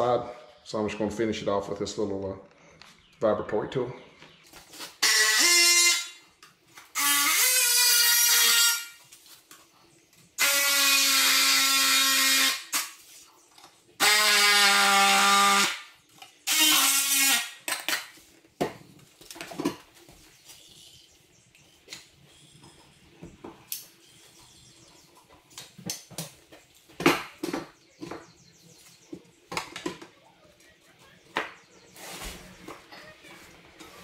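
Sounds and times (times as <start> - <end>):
multi-tool cutting wood: 6.9 - 9.0, 10.4 - 13.0, 14.0 - 15.9, 16.5 - 18.1.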